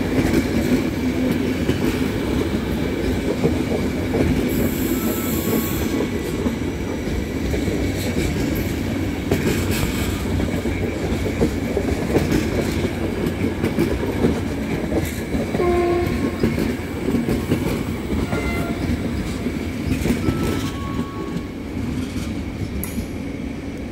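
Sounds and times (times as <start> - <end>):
train wheels rumbling on rail: 0.0 - 23.9
brief tones: 20.2 - 21.4.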